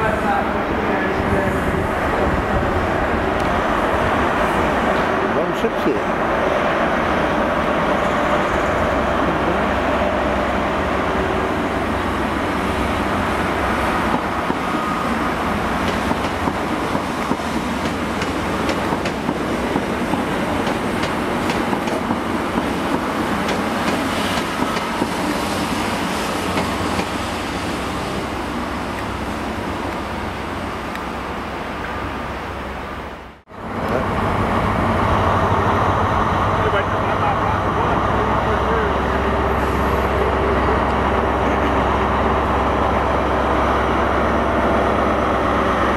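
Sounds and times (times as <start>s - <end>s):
diesel train engine running: 33.5s - 45.9s.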